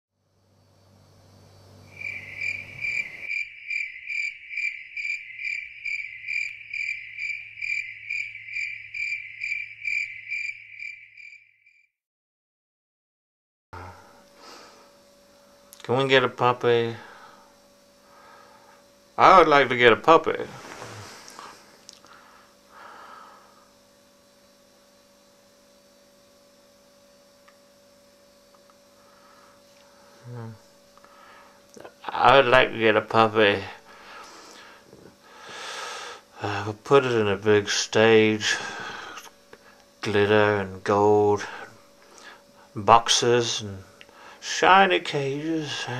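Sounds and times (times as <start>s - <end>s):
faint electrical hum and hiss: 0.2s - 3.4s, 13.8s - 45.9s
cricket chirping: 0.3s - 11.9s.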